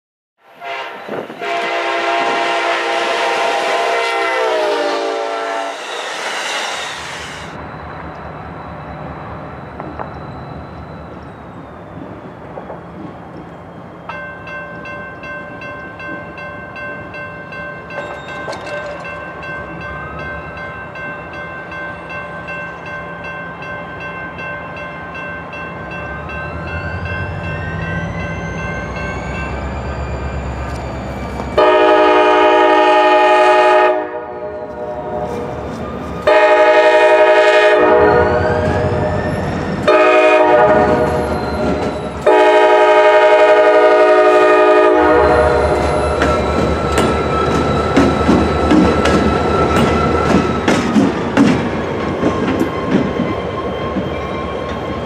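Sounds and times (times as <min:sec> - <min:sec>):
locomotive horn: 0:00.4 - 0:06.1, 0:31.6 - 0:35.6, 0:36.2 - 0:39.1, 0:39.8 - 0:46.2
railroad crossing bell ringing: 0:13.7 - 0:33.6, 0:34.5 - 0:50.6
locomotive rumble: 0:34.6 - 0:55.0.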